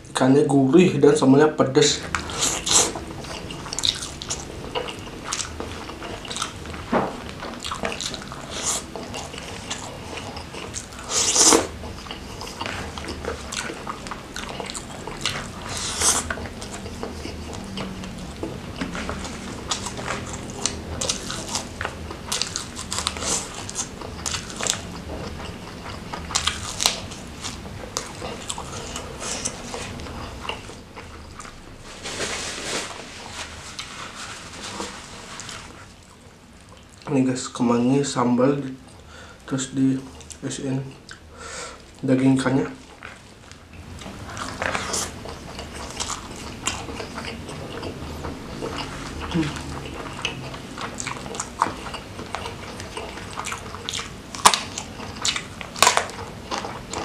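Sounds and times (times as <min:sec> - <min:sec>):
crunching bites and chewing: 0:02.1 - 0:31.8, 0:42.8 - 0:57.0.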